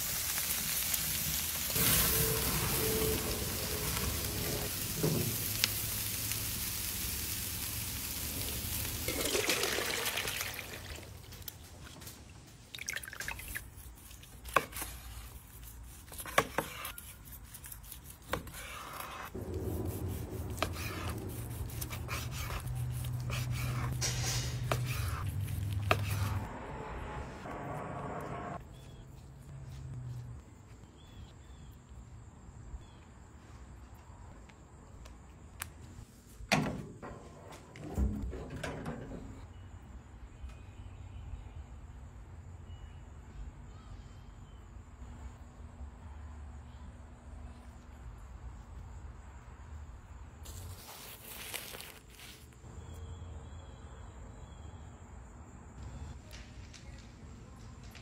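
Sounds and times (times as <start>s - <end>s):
meat sizzling on a grill: 0.0s - 9.4s.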